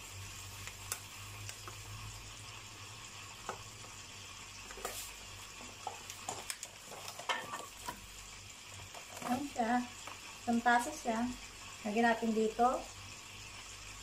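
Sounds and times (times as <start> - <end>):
sugar pouring into cup: 0.4 - 8.2.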